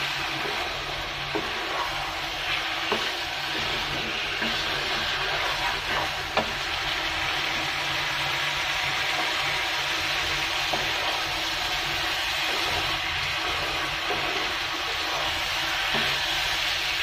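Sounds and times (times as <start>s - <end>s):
food frying in oil: 0.0s - 17.0s
wooden spatula scraping wok: 0.0s - 17.0s.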